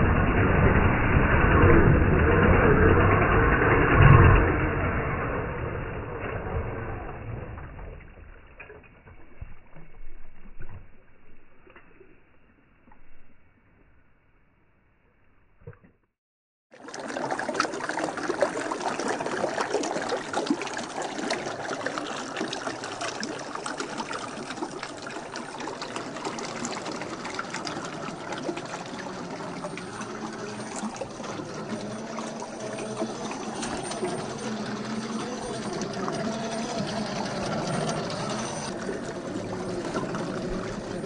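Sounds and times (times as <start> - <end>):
creek water babbling over rocks: 16.8 - 41.0.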